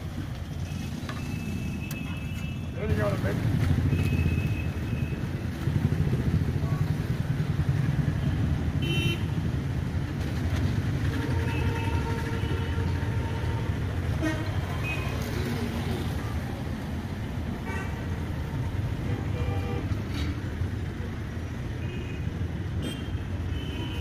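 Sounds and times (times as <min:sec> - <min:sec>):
road traffic rumble: 0:00.0 - 0:24.0
vehicle horns honking: 0:08.8 - 0:09.4, 0:11.1 - 0:15.1, 0:19.0 - 0:19.9, 0:21.8 - 0:24.0.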